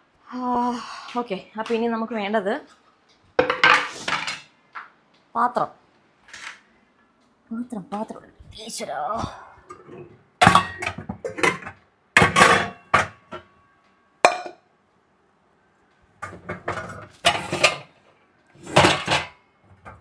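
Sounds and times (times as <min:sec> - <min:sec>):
pots clattering and clanking: 0:03.4 - 0:04.6, 0:09.7 - 0:13.6, 0:14.2 - 0:14.6, 0:16.2 - 0:20.0.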